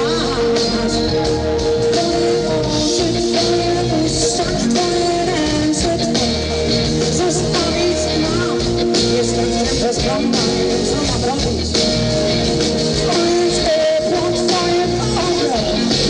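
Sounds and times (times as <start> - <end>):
woman singing: 0.0 - 6.5, 7.1 - 11.7
live rock band playing: 0.0 - 16.0.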